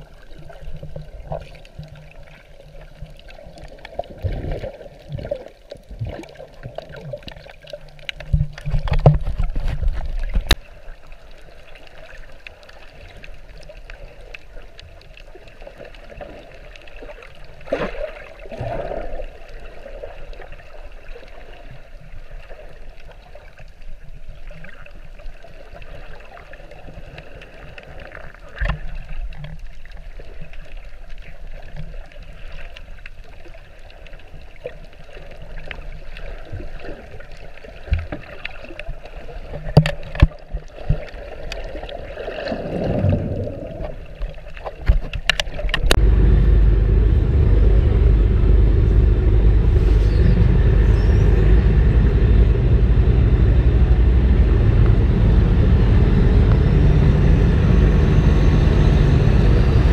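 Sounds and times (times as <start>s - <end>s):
muffled underwater water noise: 0.0s - 59.9s
bubbling: 35.5s - 57.4s
low rumble: 45.9s - 59.9s
low thumps: 45.9s - 59.9s.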